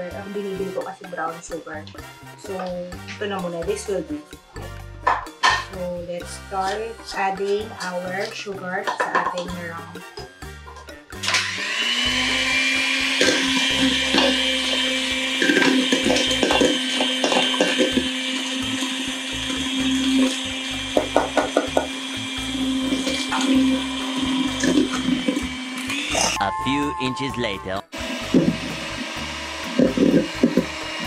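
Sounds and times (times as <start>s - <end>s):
electric hand mixer whining: 11.1s - 26.4s, 28.0s - 31.0s.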